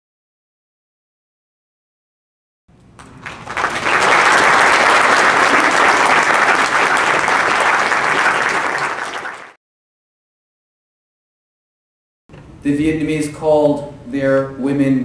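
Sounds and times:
audience applauding: 3.0 - 9.6.

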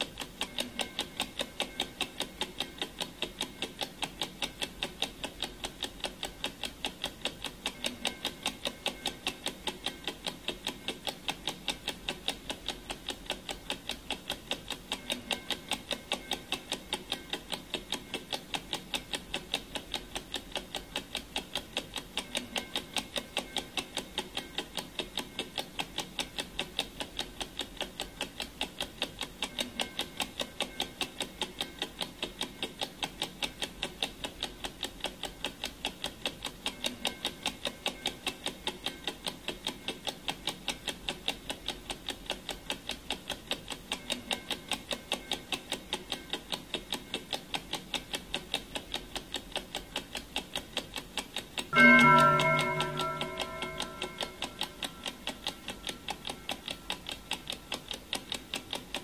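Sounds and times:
clock ticking: 0.0 - 59.0.

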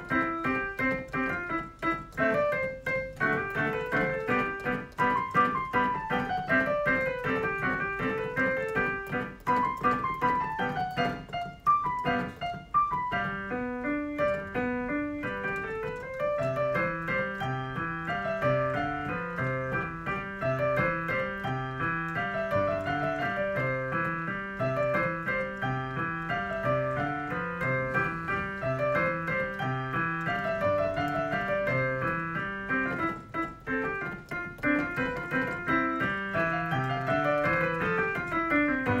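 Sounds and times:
piano music: 0.0 - 39.0.

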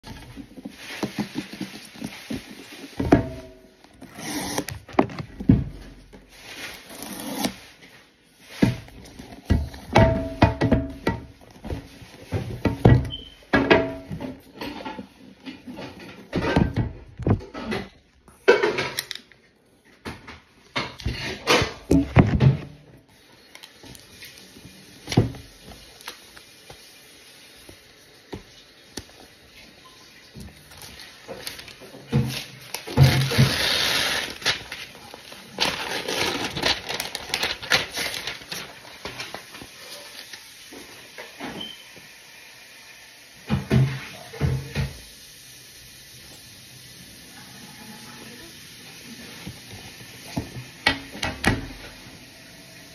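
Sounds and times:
rubbing and knocks on a box: 0.0 - 3.4
handling knocks and rustles: 0.0 - 26.9, 27.7 - 41.7.

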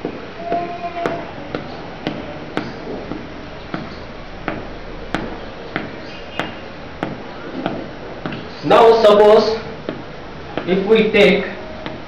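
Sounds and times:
chalk tapping on blackboard: 0.0 - 8.7
low steady hum: 0.0 - 12.0.

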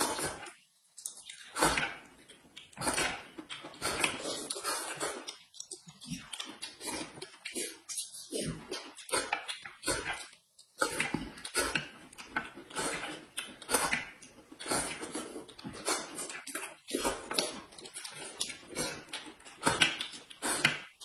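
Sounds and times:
chewing wet food: 0.0 - 21.0
people slurping broth: 12.7 - 17.6.

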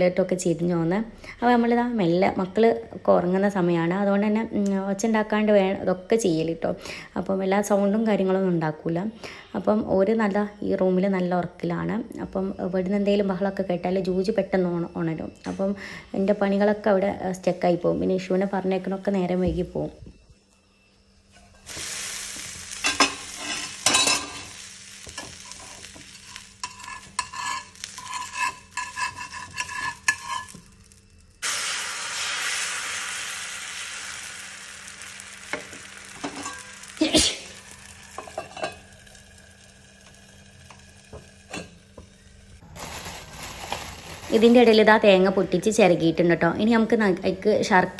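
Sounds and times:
steady hiss: 21.6 - 28.9, 30.8 - 44.7
coconut grating scrapes: 26.2 - 31.0.

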